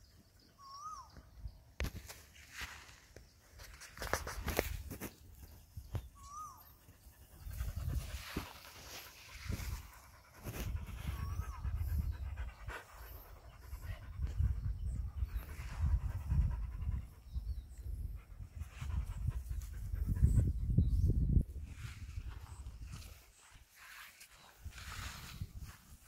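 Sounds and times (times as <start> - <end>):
dog panting: 9.7 - 17.3.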